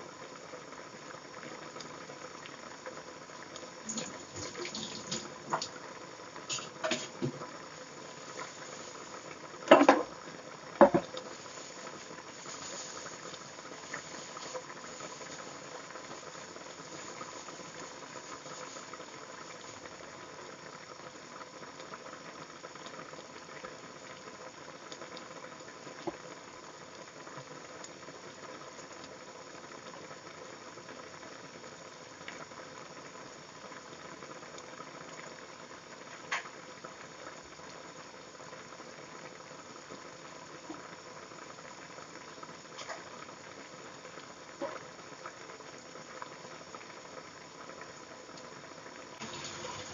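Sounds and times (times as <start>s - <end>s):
soup boiling in a pot: 0.0s - 49.9s
faint ticks: 1.7s - 2.6s, 26.9s - 28.0s, 28.7s - 29.2s, 33.3s - 35.4s.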